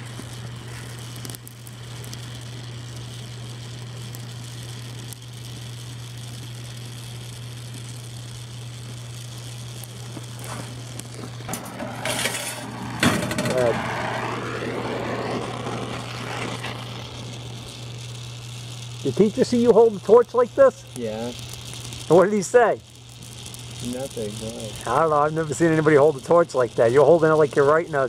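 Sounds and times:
steady low hum: 0.0s - 28.0s
welding torch flame hissing: 0.0s - 28.0s
harsh rush of noise: 11.4s - 18.0s.

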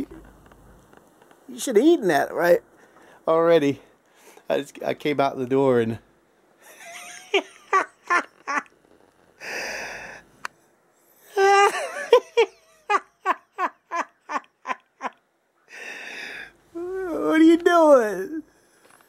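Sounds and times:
man laughing: 6.6s - 8.7s, 11.3s - 15.2s
breathy wheeze: 9.4s - 10.4s, 15.7s - 16.9s.

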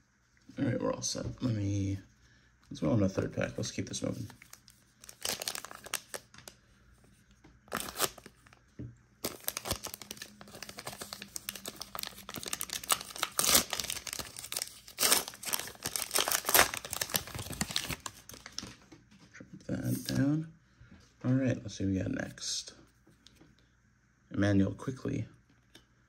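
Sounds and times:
wrapper crinkling: 4.2s - 6.6s, 7.7s - 8.6s, 9.2s - 18.8s
wrapper tearing: 4.4s - 6.3s, 7.7s - 8.5s, 9.2s - 18.7s.

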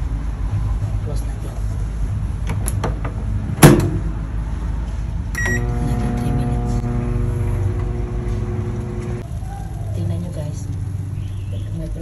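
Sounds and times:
short beep: 5.4s - 5.8s
microwave oven humming: 5.4s - 11.6s.

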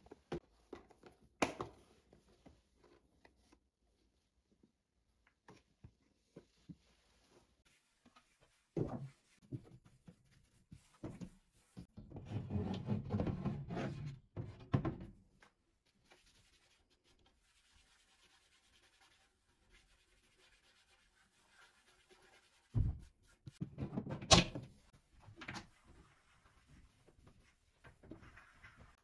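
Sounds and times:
cloth rubbing a shelf: 6.2s - 14.0s, 16.0s - 23.6s, 25.7s - 29.0s.

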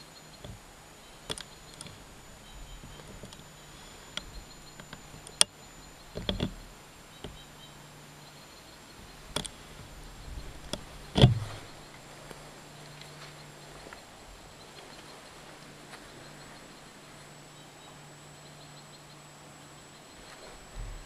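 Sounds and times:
sharp clicks and knocks: 0.3s - 7.8s, 8.9s - 12.0s.

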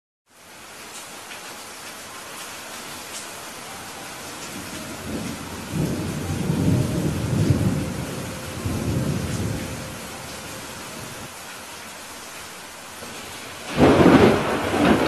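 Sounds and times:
rain falling: 0.3s - 15.0s
thunder rolling: 4.6s - 11.3s, 13.6s - 15.0s.

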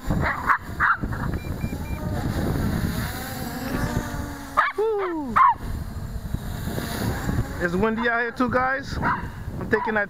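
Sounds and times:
drone motors whirring: 0.0s - 9.6s
wind rumble on microphone: 0.0s - 10.0s
short high beeps: 1.3s - 2.0s.

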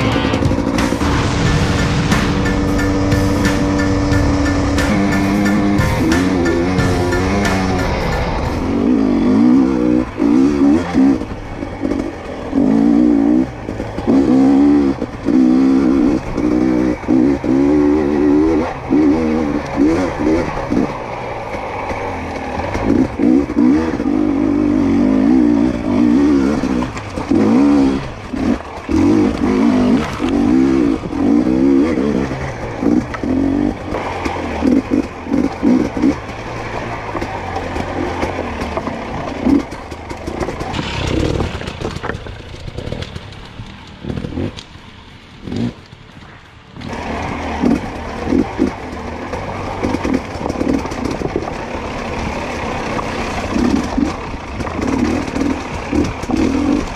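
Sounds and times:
dirt bike engine revving: 0.0s - 46.1s, 46.8s - 56.9s
bike scraping over rocks: 32.2s - 46.1s, 46.8s - 56.9s.

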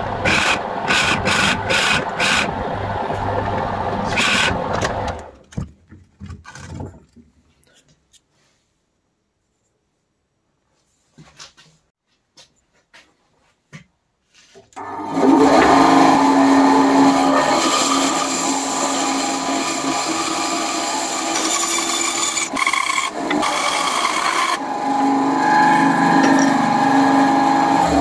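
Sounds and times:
bandsaw cutting wood: 0.0s - 5.3s, 14.8s - 28.0s
motor hum: 0.0s - 5.4s.

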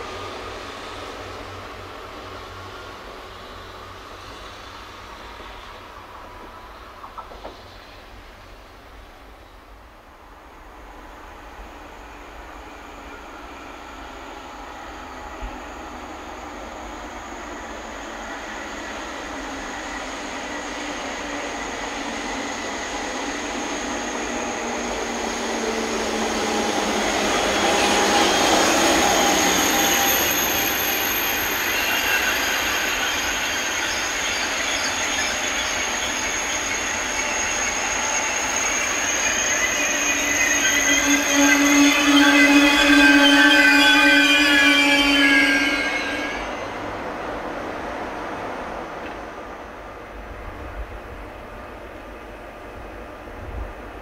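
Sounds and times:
high-speed train passing: 0.0s - 54.0s
wheels and brakes squealing: 14.8s - 47.0s.

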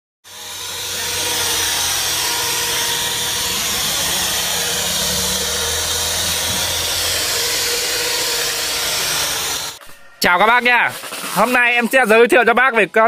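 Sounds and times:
plaster floating machine hissing: 0.3s - 9.8s.

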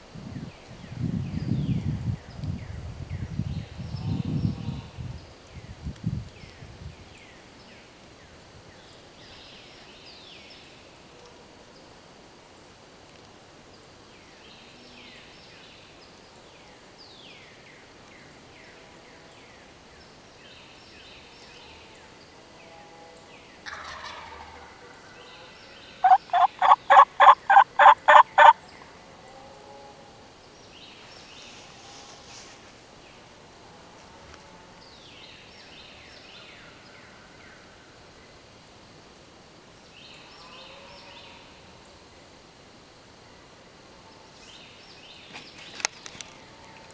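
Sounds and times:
wild turkey calling: 23.6s - 24.7s, 26.0s - 28.6s.

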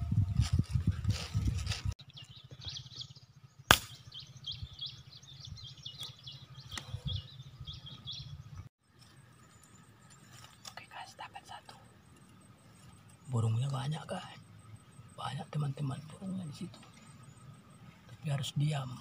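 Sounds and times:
small birds chirping: 2.0s - 19.0s
air rifle shot: 3.7s - 4.1s.

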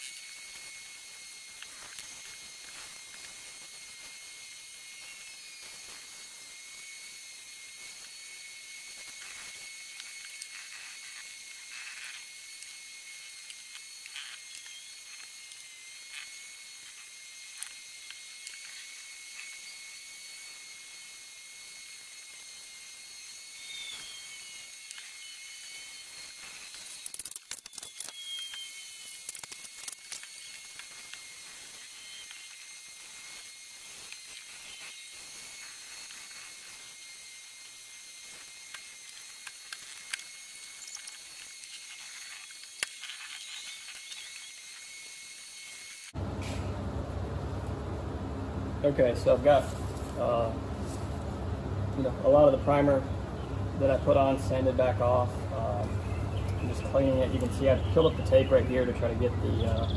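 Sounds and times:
sandpaper scratching: 0.0s - 6.3s, 7.8s - 20.6s, 23.6s - 46.1s
sharp scratches and clicks: 8.9s - 19.8s, 23.7s - 37.0s, 38.2s - 46.1s
short falling whistles: 23.5s - 26.7s, 27.6s - 29.3s.

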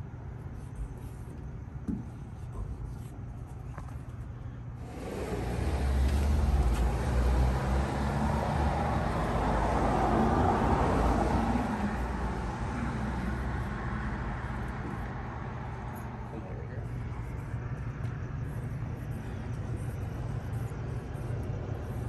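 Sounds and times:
road vehicle passing by: 4.8s - 17.4s.

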